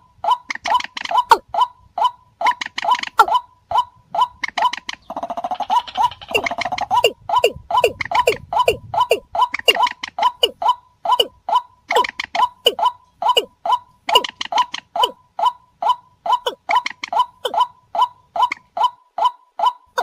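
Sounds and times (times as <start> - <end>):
rails calling: 0.0 - 20.0.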